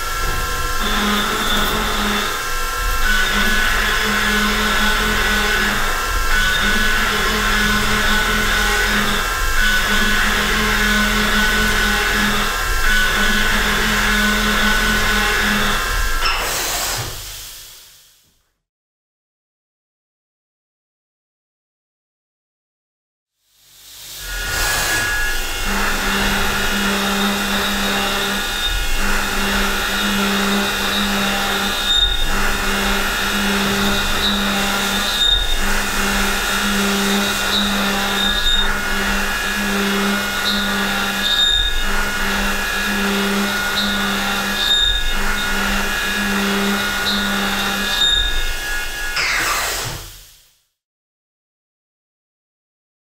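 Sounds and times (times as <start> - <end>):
milling cutter machining steel: 0.0 - 17.8, 24.1 - 50.3.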